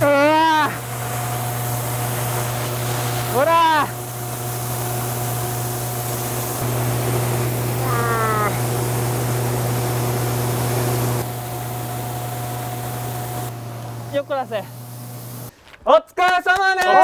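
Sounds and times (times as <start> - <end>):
man yelling: 0.0 - 0.8, 3.3 - 4.0, 7.8 - 8.6, 15.9 - 17.0
machinery humming: 0.0 - 15.5.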